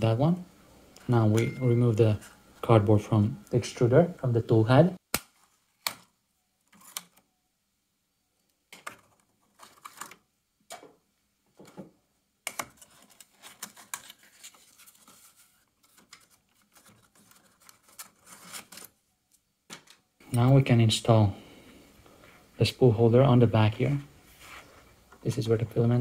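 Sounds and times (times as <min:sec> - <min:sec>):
cardboard rustling and scraping: 0:12.7 - 0:19.0.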